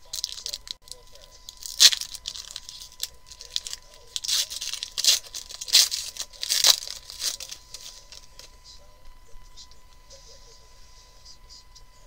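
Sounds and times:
foil wrapper tearing and crinkling: 0:00.0 - 0:08.5.

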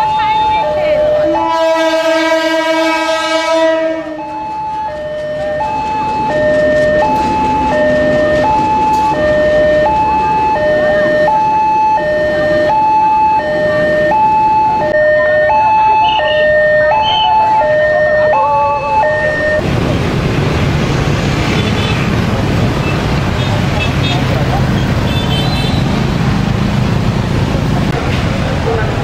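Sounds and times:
two-tone crossing alarm: 0:00.0 - 0:19.7
train passing: 0:00.0 - 0:29.0
train horn blast: 0:01.3 - 0:04.2.

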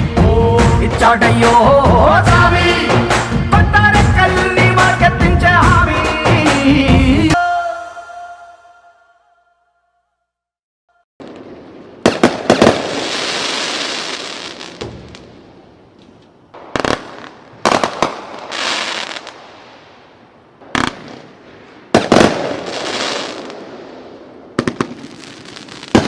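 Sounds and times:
fireworks bursting: 0:11.2 - 0:26.0.

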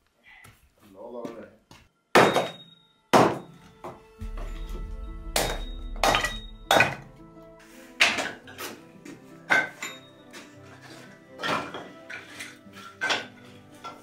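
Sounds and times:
background music: 0:01.2 - 0:14.0
hatchet chopping wood: 0:03.2 - 0:03.5.

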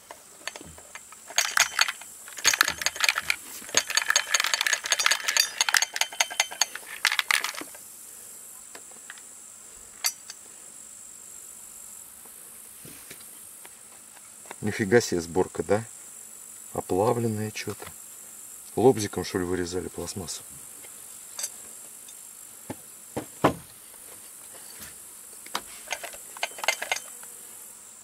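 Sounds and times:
small part rattling inside: 0:00.0 - 0:07.8, 0:25.8 - 0:27.3
plastic housing clattering: 0:00.4 - 0:07.8, 0:25.9 - 0:27.2.

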